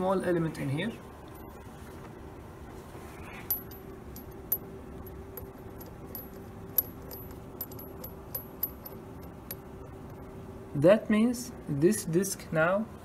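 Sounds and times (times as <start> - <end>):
steady hum: 0.0 - 13.0
small metal clicks and clinks: 3.4 - 9.7.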